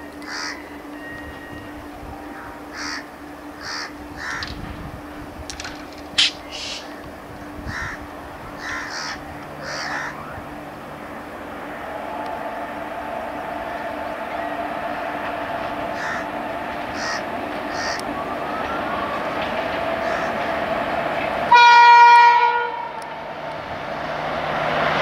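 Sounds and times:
electric locomotive humming: 0.0s - 25.0s
crows cawing: 0.2s - 0.6s, 2.7s - 4.6s, 7.7s - 10.3s, 15.9s - 18.0s, 20.0s - 20.5s.

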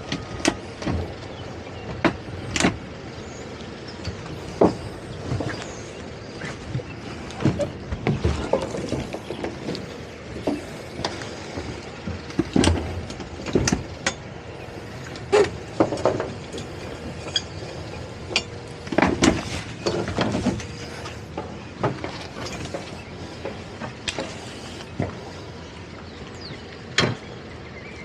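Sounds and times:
outboard motors idling: 0.0s - 28.0s.

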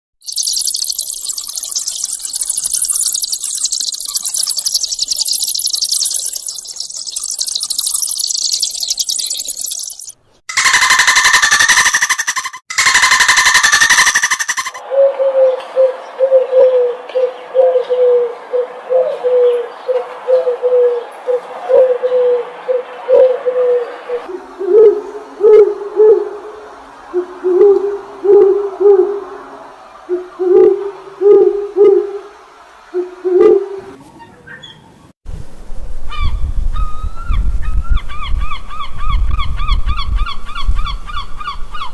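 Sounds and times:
shrill insect chorus: 0.2s - 14.8s.

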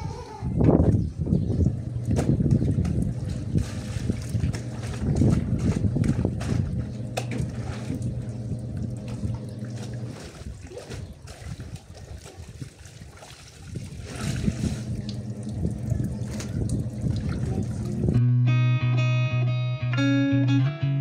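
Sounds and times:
water splashing and trickling: 0.8s - 18.2s
low steady hum: 1.4s - 11.8s, 14.0s - 18.2s.

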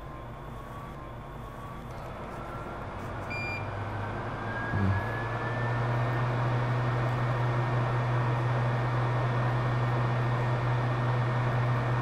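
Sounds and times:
short electronic beep: 3.3s - 3.6s.

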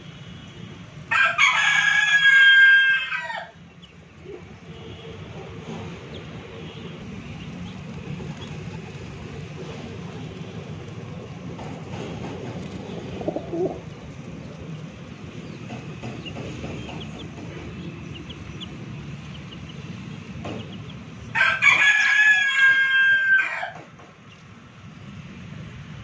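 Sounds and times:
rooster crowing: 1.1s - 3.6s, 21.3s - 23.9s.

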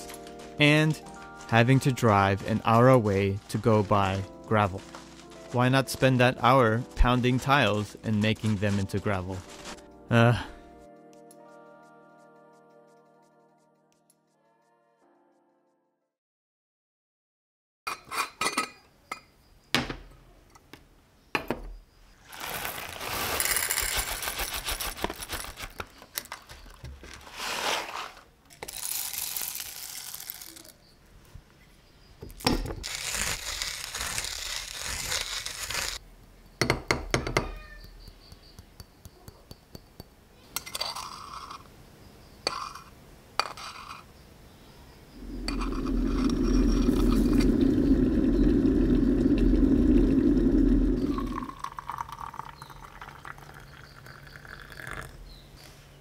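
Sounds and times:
hand coffee grinder grinding: 0.0s - 9.8s, 22.4s - 26.5s, 27.1s - 30.8s, 32.8s - 36.0s, 45.2s - 55.1s
knife scraping coffee grounds: 0.0s - 9.8s, 27.2s - 28.2s, 40.6s - 41.6s, 45.2s - 47.7s
low steady hum: 45.2s - 51.7s.

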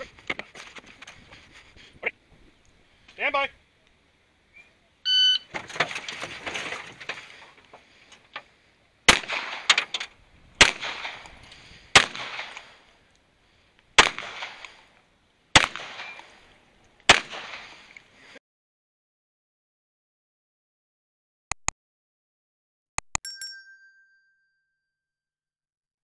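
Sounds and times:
shot timer beep: 5.1s - 5.4s
pistol shots: 9.1s - 9.8s, 10.6s - 11.3s, 11.9s - 12.8s, 14.0s - 14.8s, 15.6s - 16.3s, 17.1s - 17.8s.

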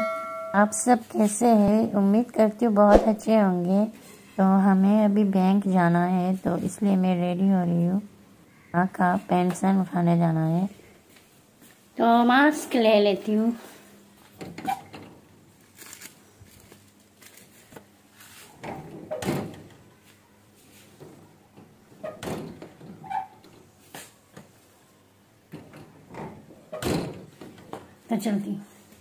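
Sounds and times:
things being handled: 14.2s - 24.6s.

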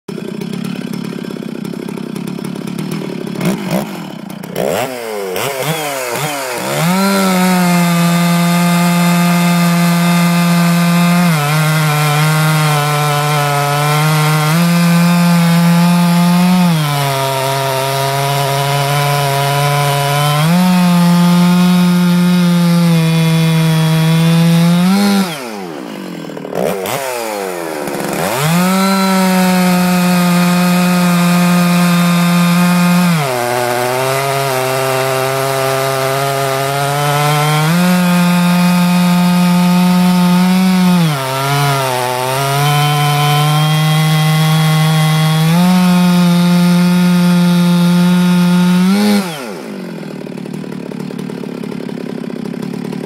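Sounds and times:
chainsaw revving and cutting log: 0.0s - 53.0s.

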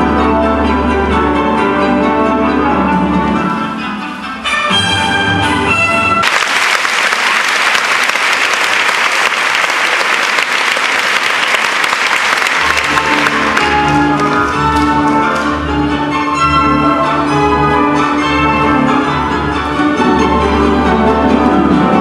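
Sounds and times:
orchestral ballet music: 0.0s - 8.7s, 9.4s - 22.0s
audience applauding: 6.2s - 15.5s.

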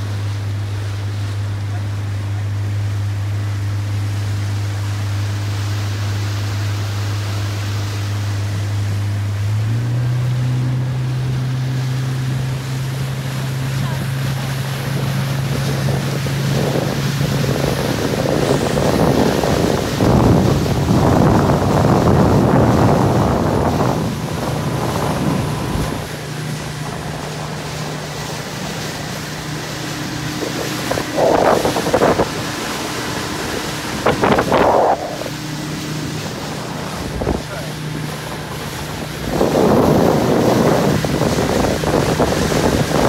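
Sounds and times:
boat motor running: 0.0s - 43.0s
water rushing past hull: 0.0s - 43.0s
wind buffeting microphone: 10.0s - 43.0s.

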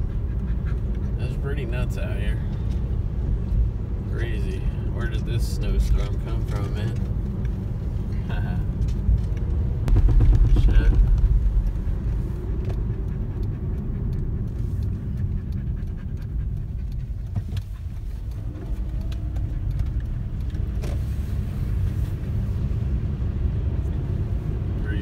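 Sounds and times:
car road noise inside cabin: 0.0s - 25.0s
faint clicks: 10.9s - 21.9s.

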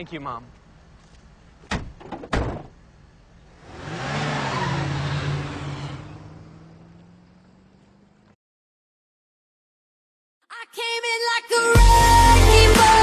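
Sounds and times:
car doors slamming: 1.6s - 2.8s
car engine revving: 3.3s - 8.4s.

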